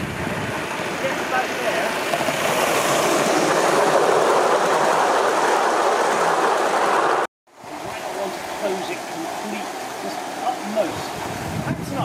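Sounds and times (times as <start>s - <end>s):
steam hiss and exhaust: 0.0s - 12.0s
wheels rattling on track: 0.0s - 12.0s.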